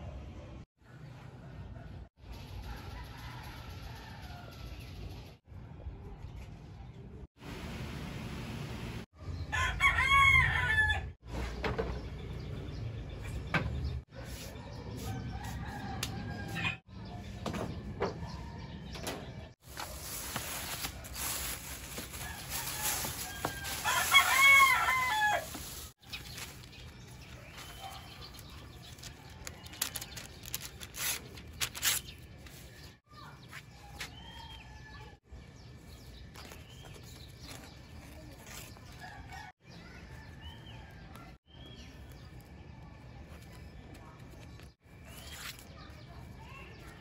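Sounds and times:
rooster crowing: 9.5 - 11.1, 22.3 - 25.6
paper and leaves rustling: 19.6 - 34.8, 35.7 - 47.0.

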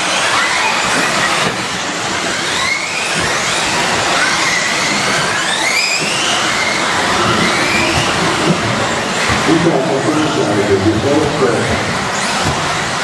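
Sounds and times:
rc car motors whining: 0.0 - 13.0.

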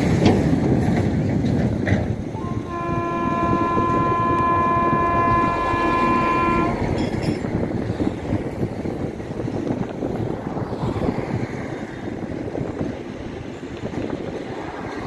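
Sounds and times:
locomotive horn blast: 2.3 - 7.2.

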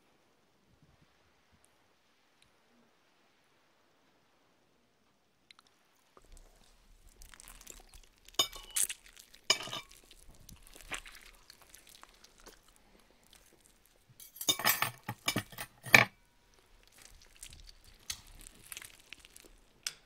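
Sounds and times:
metal cutlery clinking: 8.4 - 8.9, 9.5 - 10.0, 14.2 - 16.2.

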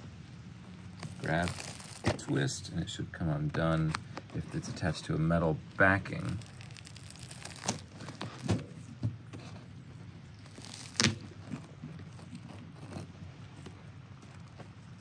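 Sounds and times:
faint rustling of leather: 0.1 - 15.0.

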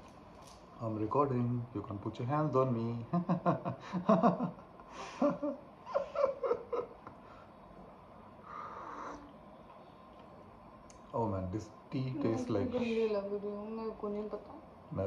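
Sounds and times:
person laughing or murmuring: 3.3 - 7.2
breathy sound: 8.4 - 9.4.

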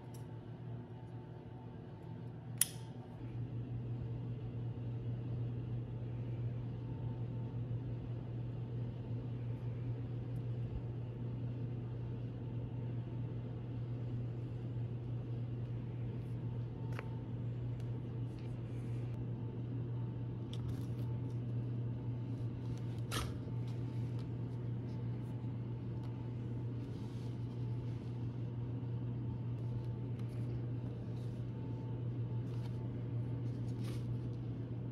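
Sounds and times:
low machine hum: 0.0 - 34.9.

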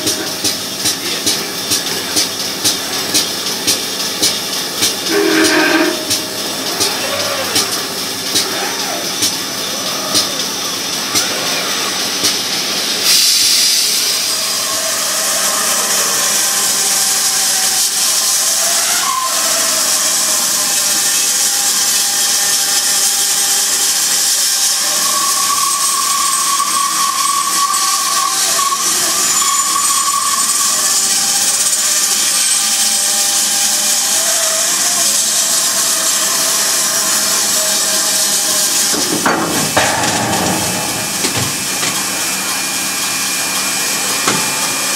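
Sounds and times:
band saw cutting metal: 1.0 - 9.8, 24.4 - 44.9.

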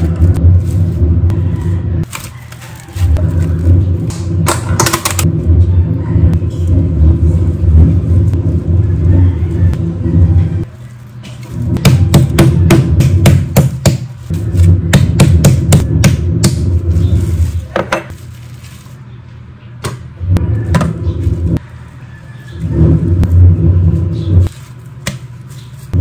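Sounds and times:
low hum: 3.1 - 13.3, 18.4 - 24.8.

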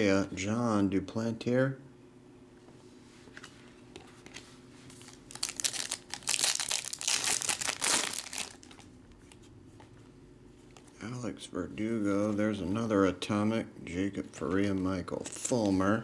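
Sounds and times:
wrapper tearing and crinkling: 4.9 - 8.9.

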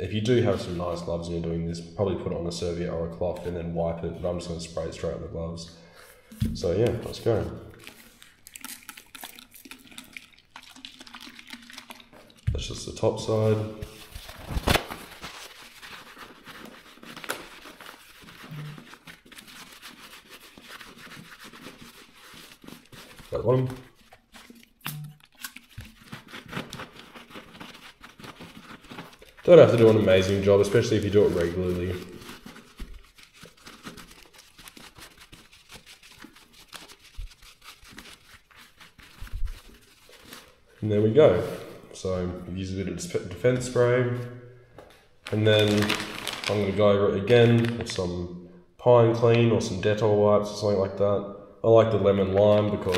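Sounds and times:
paper towel crinkling: 0.1 - 1.3, 6.2 - 42.6, 45.2 - 48.2, 51.9 - 52.9
cloth rubbing on leather gloves: 0.2 - 1.3, 6.6 - 8.2, 12.9 - 24.8, 25.6 - 41.9.

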